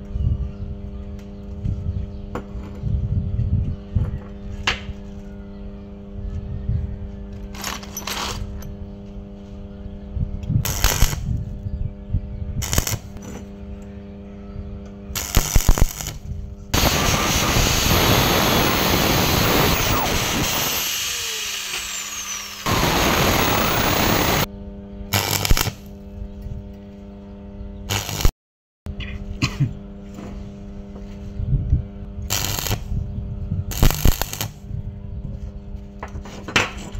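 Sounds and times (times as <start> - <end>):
steady hum: 8.6 - 28.3
angle grinder cutting metal: 15.2 - 16.2, 16.8 - 24.5, 27.9 - 28.3, 32.3 - 32.8, 33.7 - 34.5.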